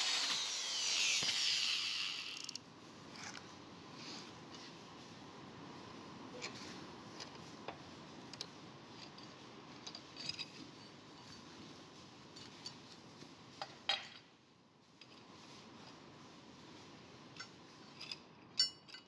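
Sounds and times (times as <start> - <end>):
wrench clinking on metal workbench: 17.4 - 19.0.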